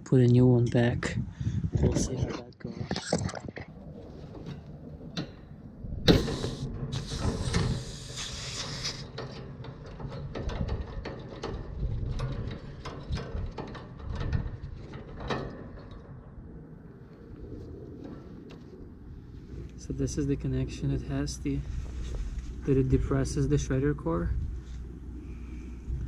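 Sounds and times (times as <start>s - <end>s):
loud refrigerant hiss: 6.1s - 9.4s.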